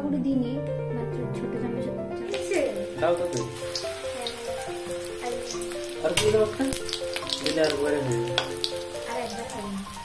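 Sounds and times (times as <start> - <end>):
quiet background music: 0.0 - 10.0
food sizzling in hot oil: 2.2 - 10.0
metal spatula in oil: 3.4 - 9.3.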